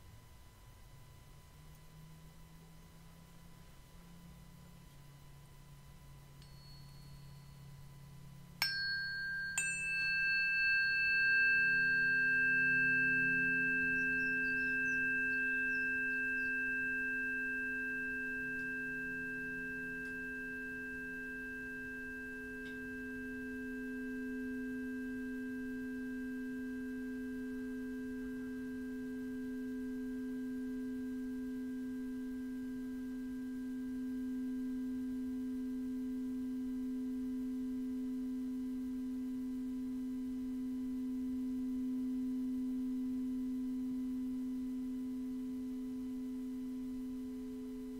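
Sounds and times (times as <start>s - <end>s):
pure ringing tones: 6.3s - 47.9s
metal instruments struck ping: 8.6s - 23.4s.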